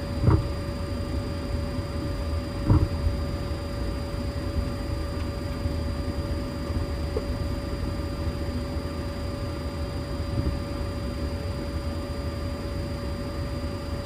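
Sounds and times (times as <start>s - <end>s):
jet engines idling: 0.0s - 14.0s.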